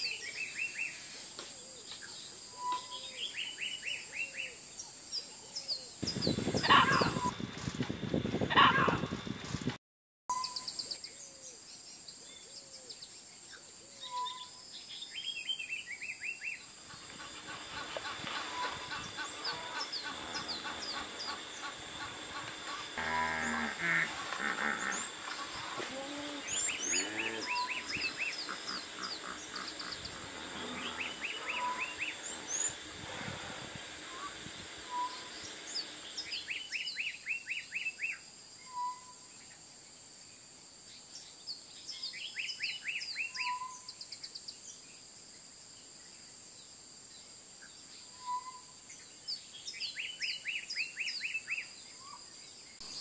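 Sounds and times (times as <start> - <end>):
steady high hiss: 0.0 - 9.7, 10.4 - 53.0
bird whistle: 2.5 - 4.0, 6.1 - 7.3, 14.0 - 14.6, 18.3 - 22.9, 26.4 - 33.3, 34.1 - 39.3, 42.4 - 43.9, 48.1 - 48.7
birds chirping: 5.6 - 7.5, 12.3 - 37.9
burst of noise: 17.4 - 36.5.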